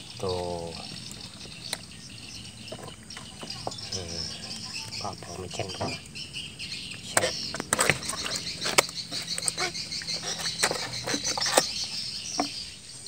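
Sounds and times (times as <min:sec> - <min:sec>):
night insects chirring: 0:00.0 - 0:13.0
fish slapping on wooden boards: 0:07.1 - 0:12.6.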